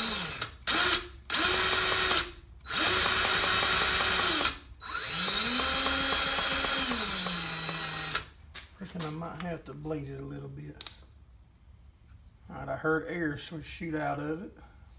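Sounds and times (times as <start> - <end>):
grease gun motor whining: 0.0 - 8.3.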